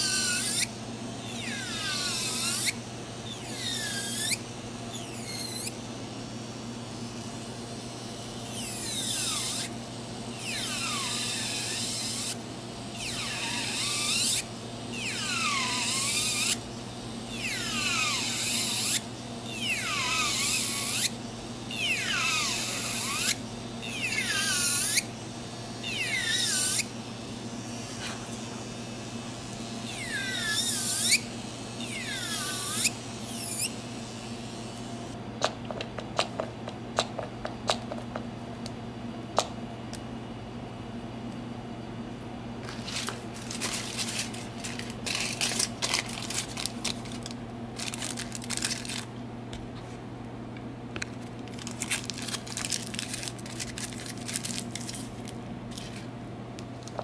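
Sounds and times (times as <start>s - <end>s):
electric nail drill whining: 0.0s - 5.8s, 8.4s - 16.6s, 17.3s - 25.1s, 25.8s - 26.9s, 29.5s - 35.2s
steady low hum: 0.0s - 57.0s.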